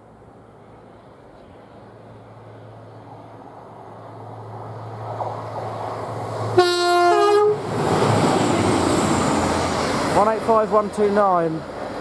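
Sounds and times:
train rumble passing: 0.1s - 12.0s
two-tone train horn: 6.6s - 7.6s.

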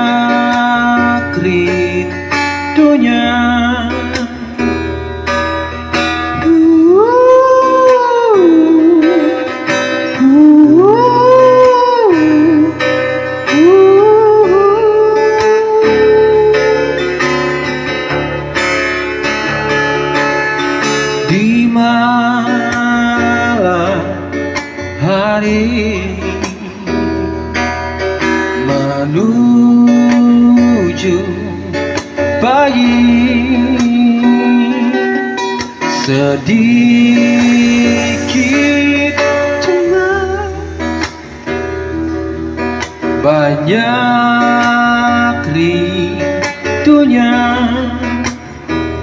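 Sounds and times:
sliding held melody notes: 25.0s - 49.0s.

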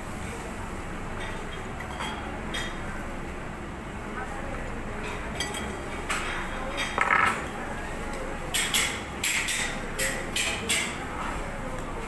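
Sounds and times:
tableware clinking: 5.4s - 7.5s.

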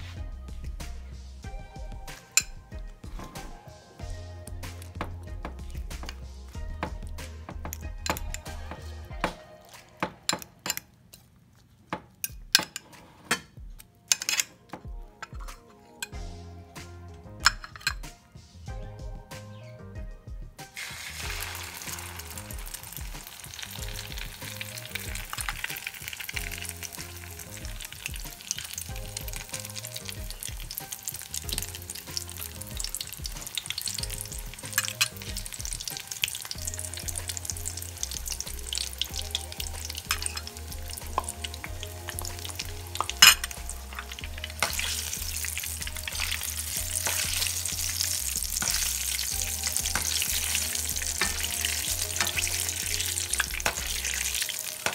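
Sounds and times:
food sizzling in hot oil: 20.7s - 54.9s.

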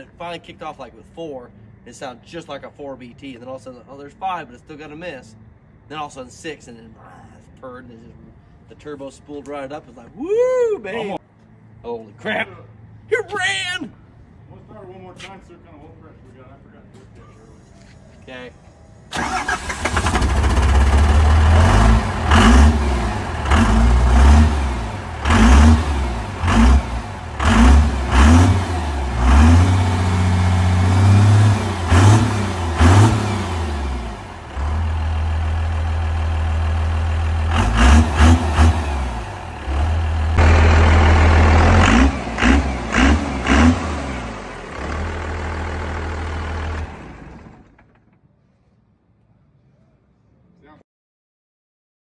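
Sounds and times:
diesel engine revving: 19.1s - 47.9s.

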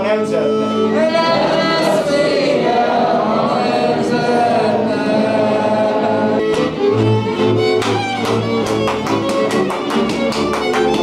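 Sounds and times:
fiddle: 0.0s - 11.0s
string bass: 0.0s - 11.0s
people singing: 0.9s - 7.1s.

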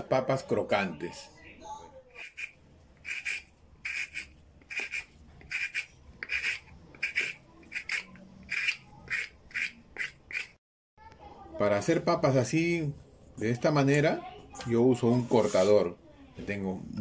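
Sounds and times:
potato cutter scraping potato: 2.2s - 10.6s.

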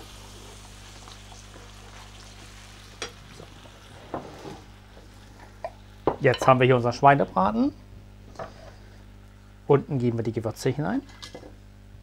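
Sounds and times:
vegetables sizzling in a frying pan: 0.0s - 7.4s.

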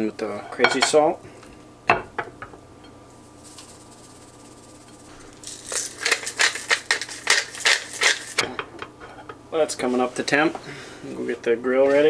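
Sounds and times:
pepper mill grinding: 3.3s - 8.4s.

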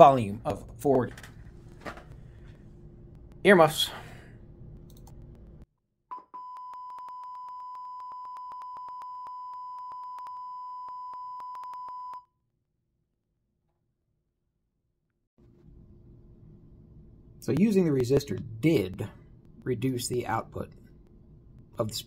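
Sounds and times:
clicks: 4.8s - 5.6s
steady test tone beep: 6.1s - 12.3s.

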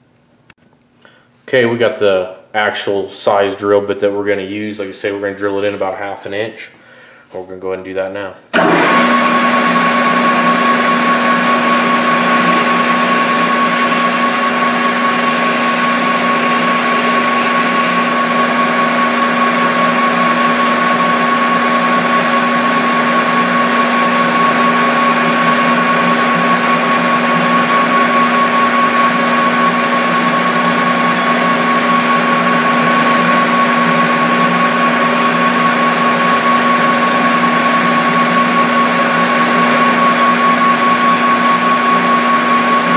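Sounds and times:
metal lathe whining: 8.6s - 42.9s.

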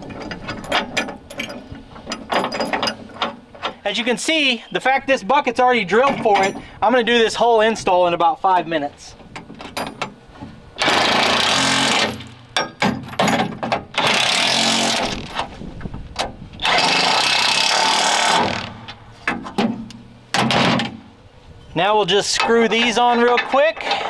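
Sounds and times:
clicks and knocks of hardware: 0.0s - 3.8s, 12.6s - 14.0s.

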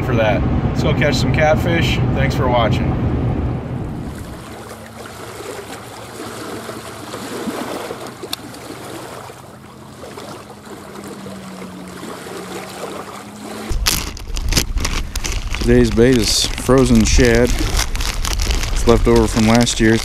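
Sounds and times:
waves lapping on rocky shore: 4.0s - 20.0s.

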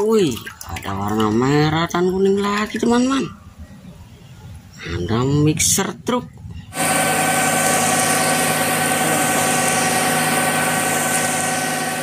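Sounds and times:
diesel truck engine running: 6.7s - 12.0s
steady whine: 6.7s - 12.0s
concrete pouring down chute: 6.8s - 12.0s.

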